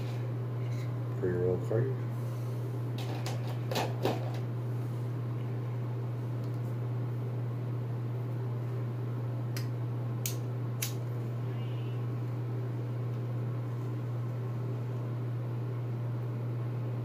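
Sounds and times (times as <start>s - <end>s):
steady low hum: 0.0s - 17.0s
lighter striking: 9.6s - 11.0s.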